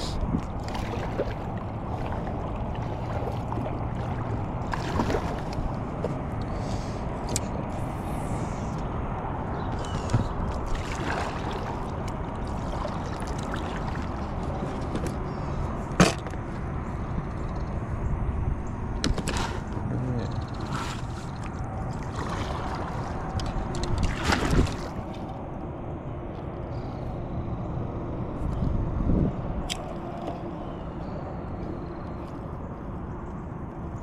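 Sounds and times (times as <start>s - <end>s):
water lapping around kayak: 0.0s - 17.2s, 18.2s - 27.2s.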